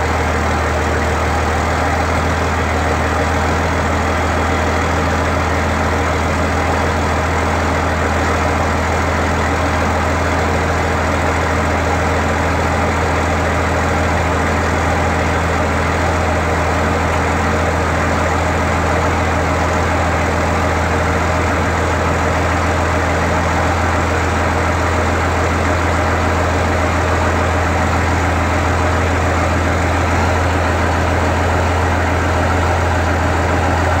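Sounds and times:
diesel tractor idling: 0.0 - 34.0.

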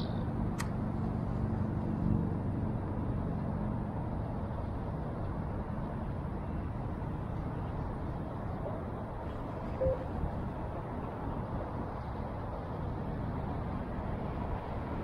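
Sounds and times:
sharp click: 0.6 - 0.8.

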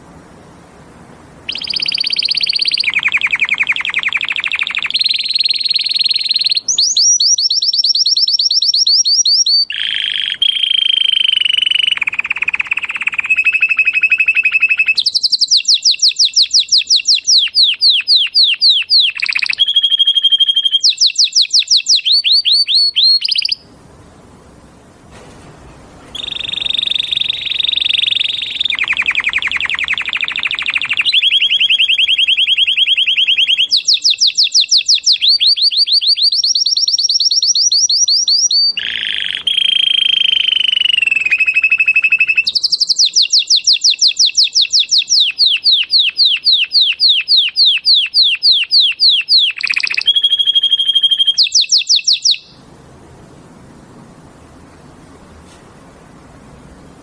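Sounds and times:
canary singing trills: 1.4 - 23.7, 26.1 - 52.6.

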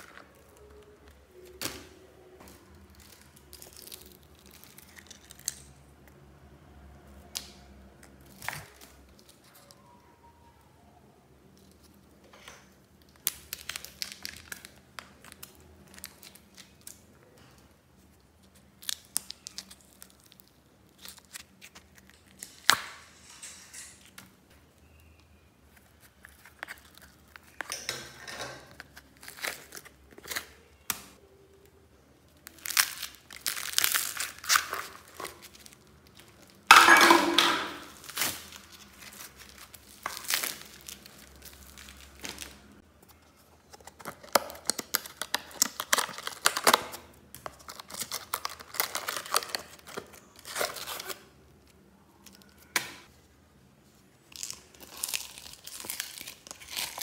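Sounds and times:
plastic tubs and bags crinkling: 12.6 - 22.8, 25.7 - 30.9, 32.3 - 53.1, 54.2 - 57.0.

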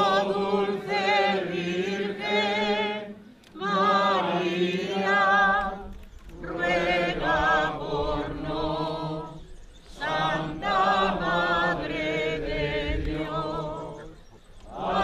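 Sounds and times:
choir singing a hymn: 0.0 - 15.0.

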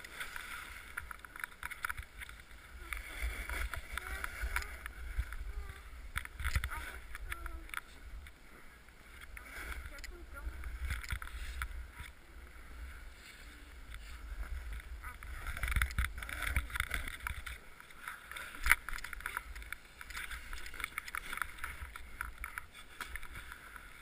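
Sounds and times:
wind on microphone: 2.0 - 8.4, 9.2 - 17.7.

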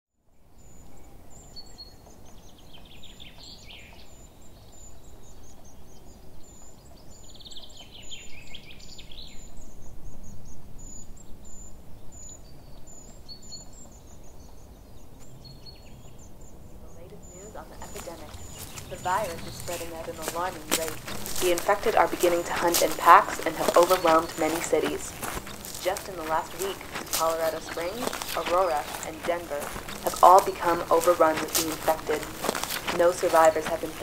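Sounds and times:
low rumble of wind: 0.4 - 22.1, 25.0 - 32.9
high bird chirp: 16.8 - 34.0.

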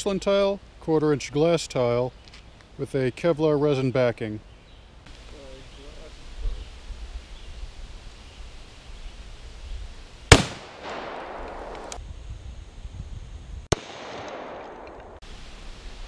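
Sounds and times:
rifle cracks with echo: 10.3 - 12.0, 13.7 - 15.2.

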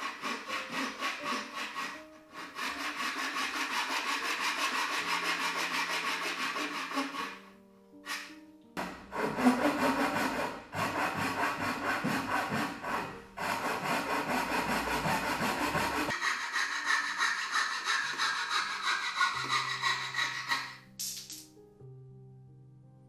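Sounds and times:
hand saw rasping through wood: 0.0 - 7.4, 8.1 - 20.9.

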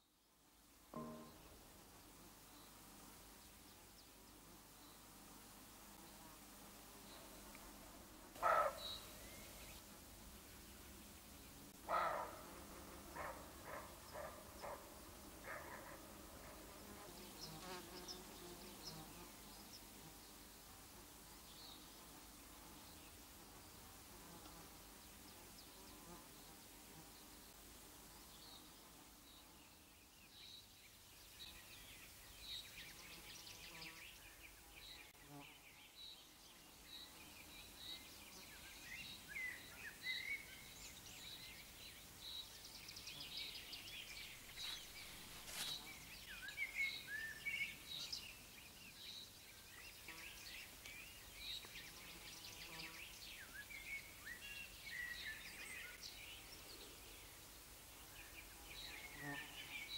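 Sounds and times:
repeated high bird note: 1.0 - 1.7
birds chirping and warbling: 8.4 - 9.7, 39.0 - 57.2.

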